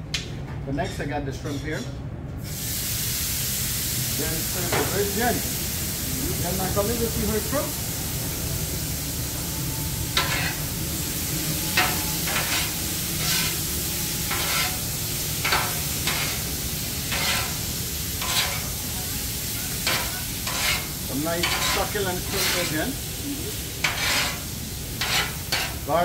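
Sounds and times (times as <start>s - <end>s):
shrimp sizzling on a griddle: 2.4s - 26.0s
steady low hum: 7.3s - 25.8s
metal spatula scraping and clinking: 10.2s - 10.6s, 11.7s - 13.6s, 14.3s - 14.8s, 17.1s - 17.6s, 18.2s - 18.7s, 19.8s - 22.9s, 23.8s - 24.4s, 25.0s - 25.8s.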